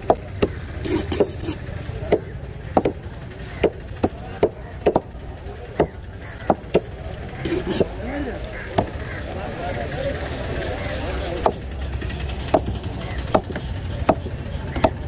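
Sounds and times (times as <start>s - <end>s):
knife chopping fish on wood: 0.0s - 5.1s, 5.8s - 7.9s, 8.7s - 9.0s, 12.5s - 15.0s.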